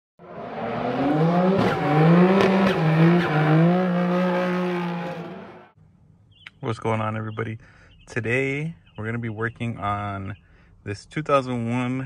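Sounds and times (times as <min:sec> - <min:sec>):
car engine revving: 0:00.2 - 0:05.8.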